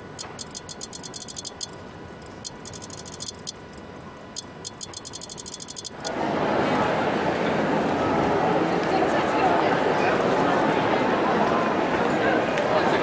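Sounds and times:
high-pitched electronic clicks: 0.0 - 6.1
faint steady hum: 0.0 - 6.9.

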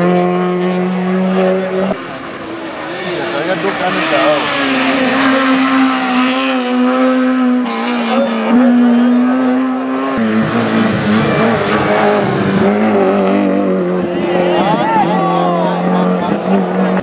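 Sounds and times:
racing car engines revving high: 0.0 - 17.0.

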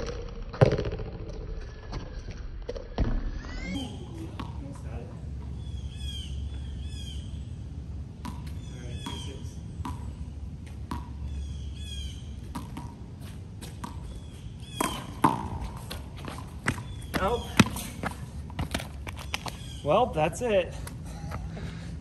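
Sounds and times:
ball bouncing on concrete: 0.0 - 5.5, 8.2 - 11.4, 12.4 - 19.7
birds chirping: 3.4 - 22.0.

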